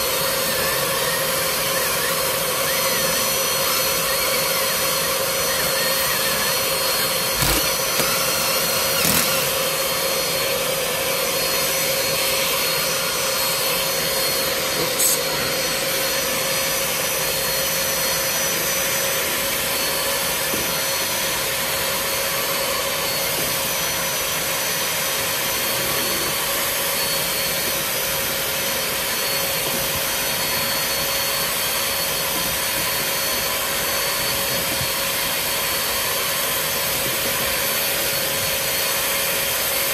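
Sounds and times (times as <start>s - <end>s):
vacuum motor whining: 0.0s - 20.8s.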